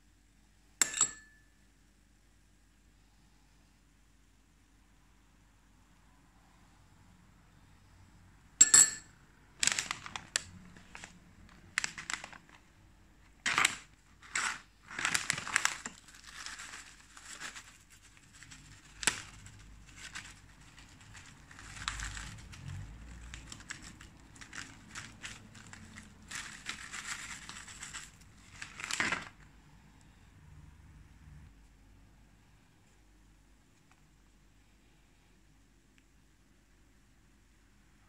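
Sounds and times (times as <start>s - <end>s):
dry seaweed crackling: 9.6s - 12.7s, 13.4s - 29.3s
plastic packet crinkling: 9.6s - 29.5s.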